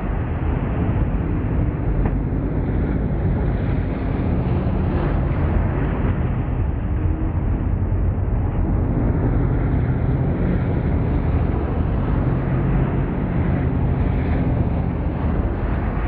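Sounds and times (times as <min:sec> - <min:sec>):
racing car engines droning: 0:00.0 - 0:16.0.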